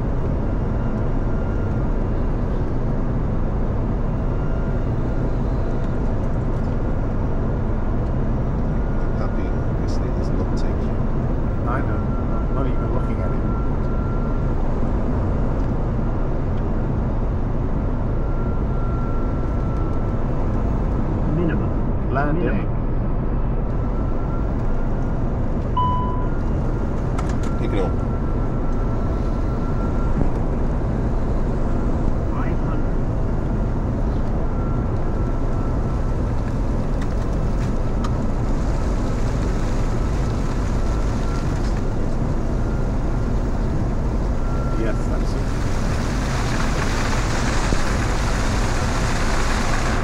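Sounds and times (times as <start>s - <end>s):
jet cockpit airflow and engine noise: 0.0s - 50.0s
faint steady tone: 23.6s - 26.8s
faint high steady tone: 25.8s - 26.6s.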